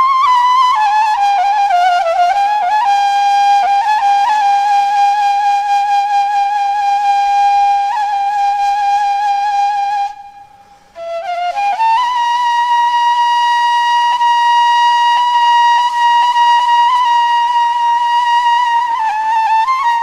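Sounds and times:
flute playing slow melody: 0.0s - 20.0s.

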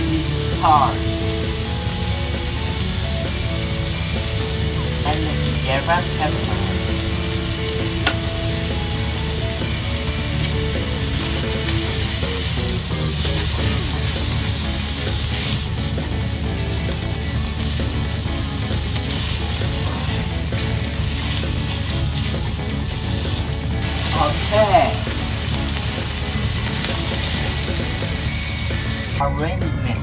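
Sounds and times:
beef sizzling in frying pan: 0.0s - 29.2s
chopsticks turning meat: 0.0s - 29.2s.

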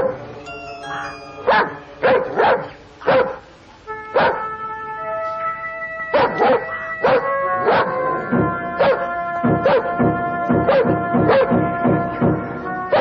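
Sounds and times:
film score chords: 0.0s - 13.0s
dog barking: 1.4s - 3.4s, 4.2s - 4.4s, 6.1s - 8.0s, 8.8s - 9.9s, 10.7s - 11.5s.

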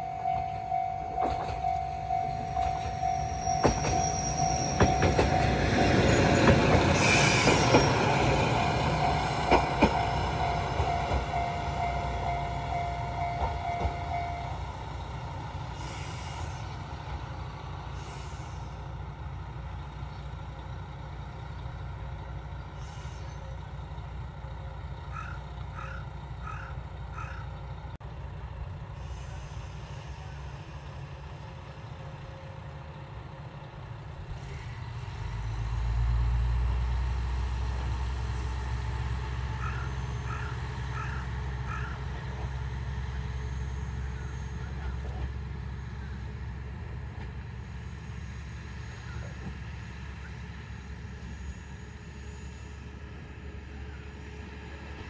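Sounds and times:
level crossing alarm bell ringing: 0.0s - 6.9s, 8.7s - 14.6s
diesel railcar engine humming: 0.0s - 55.0s
train wheels clicking over rail joints: 2.5s - 22.2s.

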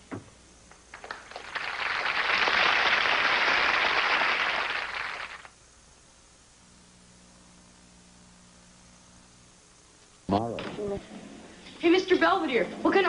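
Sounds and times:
studio audience applauding: 0.9s - 5.5s.

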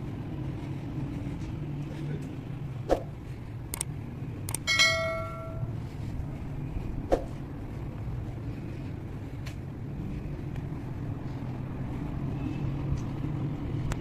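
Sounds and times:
low outdoor rumble: 0.0s - 14.0s
bright bell ding: 4.6s - 5.8s.

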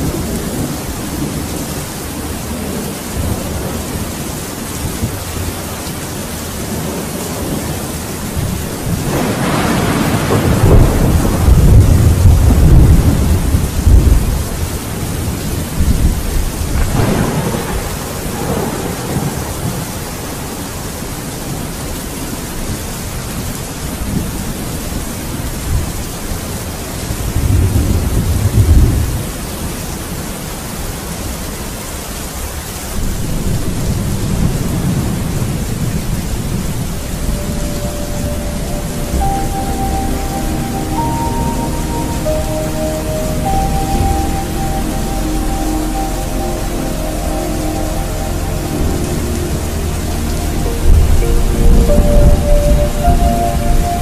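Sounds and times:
thunder rumbling: 0.0s - 21.6s, 27.2s - 29.4s, 33.0s - 54.0s
steady rain: 0.0s - 54.0s.

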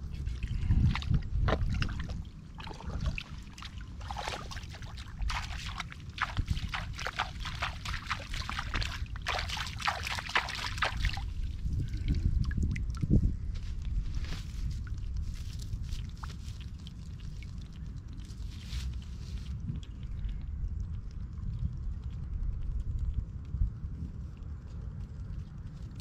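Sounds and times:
water and mud sloshing: 0.0s - 23.2s
small crackles and pops: 13.6s - 26.0s.

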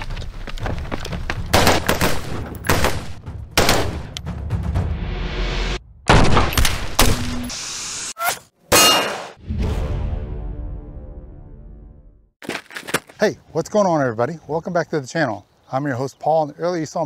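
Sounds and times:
rifle shots: 1.5s - 4.1s
background music: 2.6s - 5.9s.

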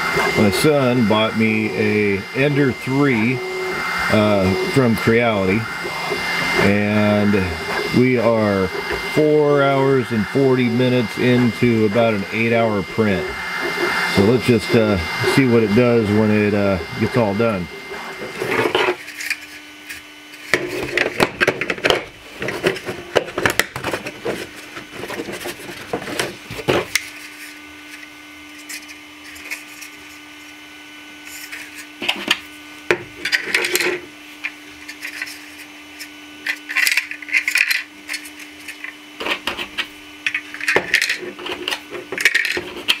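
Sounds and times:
plastic cells clicking and clattering: 36.5s - 43.0s.

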